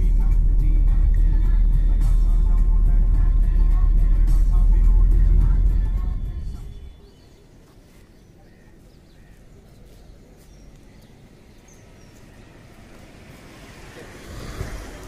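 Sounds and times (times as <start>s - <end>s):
low outdoor rumble: 0.0s - 7.5s
faint bird chirps: 6.1s - 12.5s.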